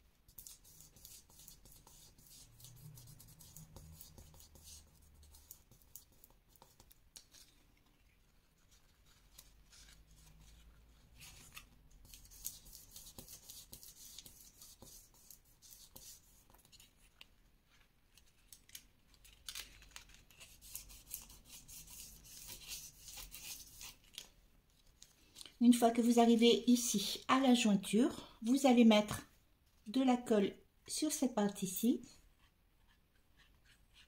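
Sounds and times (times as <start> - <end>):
paper crackling and rustling: 16.6 - 21.3.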